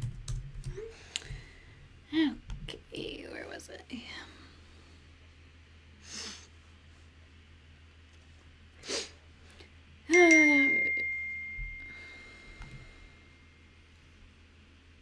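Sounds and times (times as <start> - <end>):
message alert chime: 10.1 - 12.1.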